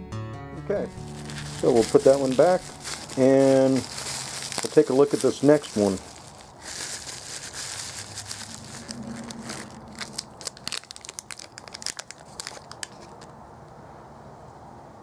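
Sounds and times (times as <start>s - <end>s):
bubble wrap and bag crinkling: 0.8s - 13.3s
sharp plastic crackles: 0.9s - 13.4s.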